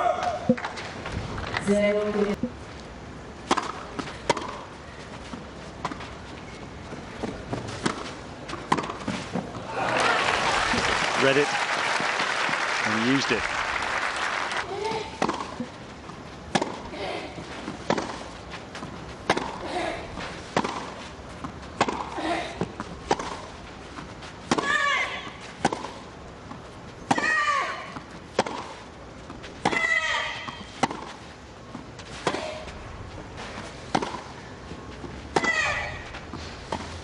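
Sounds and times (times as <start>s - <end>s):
racket hitting tennis ball: 3.4s - 9.7s, 14.6s - 37.0s.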